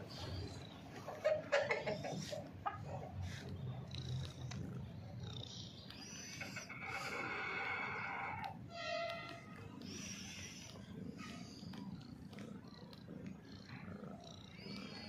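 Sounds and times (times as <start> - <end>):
chickens calling: 0.0 - 3.4, 6.0 - 8.6.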